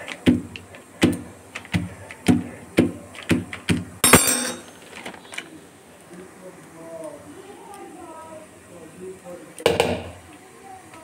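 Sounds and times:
masher knocking on dough: 0.2 - 4.0, 9.6 - 10.2.

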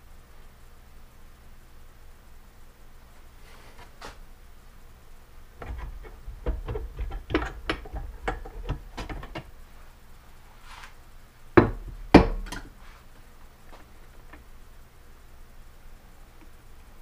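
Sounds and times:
metal engine parts clinking: 5.6 - 9.6.

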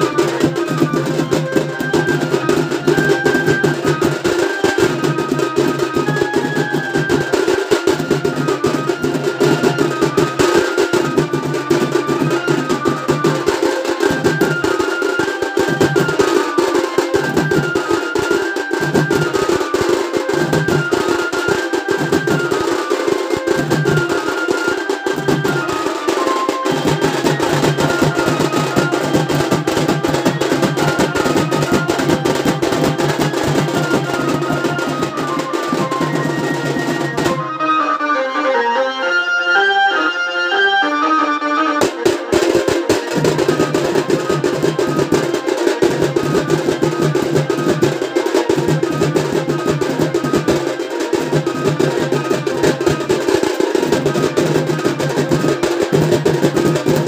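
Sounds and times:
drum band beating fast rhythm: 0.0 - 37.6, 41.8 - 57.0
stepped melody: 19.4 - 48.7.

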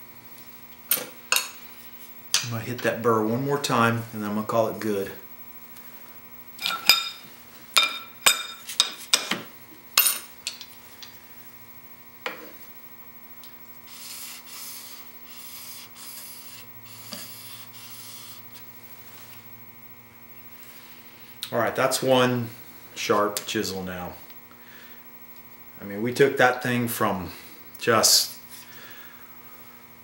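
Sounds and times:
mains hum: 0.0 - 30.0
chisel scraping on sharpening plate: 13.9 - 18.4.

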